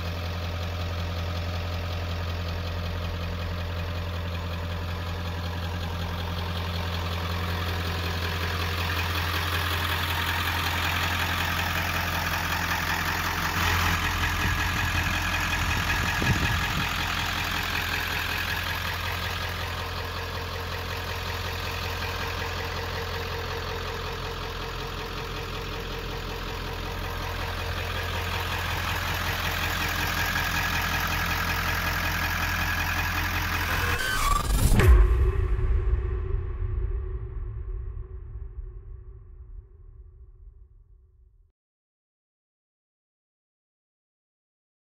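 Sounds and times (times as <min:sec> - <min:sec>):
diesel engine idling: 0:00.0 - 0:35.3.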